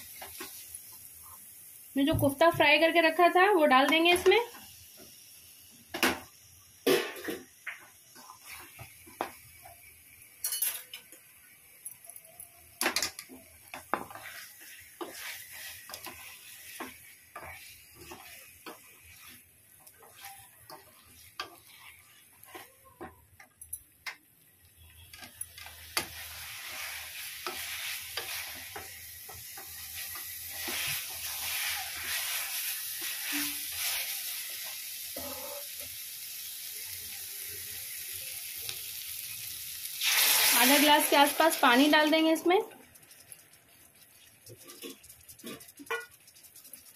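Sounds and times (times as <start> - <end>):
pan sizzling: 0.0 - 46.9
spatula scraping metal pan: 13.8 - 22.9, 29.6 - 34.1, 35.2 - 35.7, 44.5 - 46.4.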